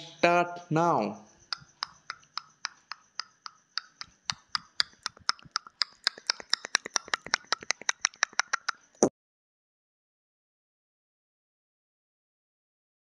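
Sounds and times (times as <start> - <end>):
countdown timer ticking: 1.5 - 8.8.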